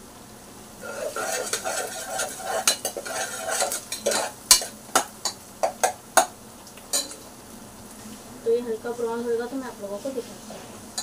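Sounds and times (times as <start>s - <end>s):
onions sizzling: 0.0s - 11.0s
spoon scraping a pot: 0.8s - 6.3s
spoon clinking against pot: 6.9s - 7.2s.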